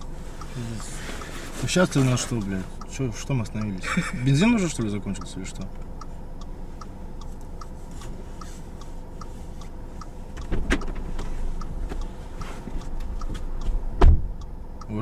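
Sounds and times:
car indicator relay ticking: 0.0 - 15.0
heavy thump: 14.0 - 14.3
thud: 14.0 - 14.3.

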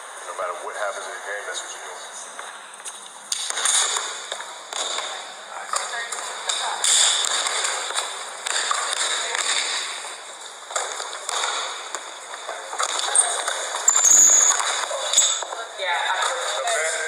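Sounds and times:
sneakers squeaking on hardwood floor: 12.5 - 15.6.

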